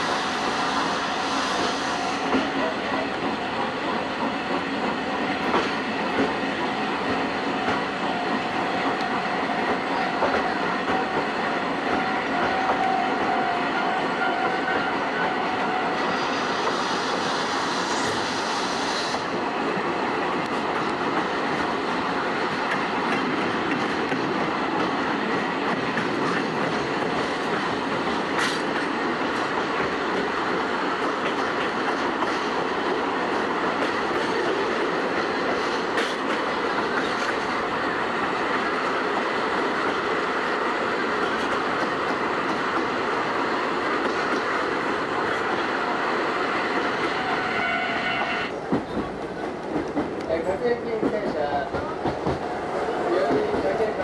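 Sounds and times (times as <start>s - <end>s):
steady train running noise: 0.0s - 54.0s
train wheels clicking over rail joints: 1.5s - 45.8s, 46.6s - 54.0s
high hiss: 16.0s - 19.4s.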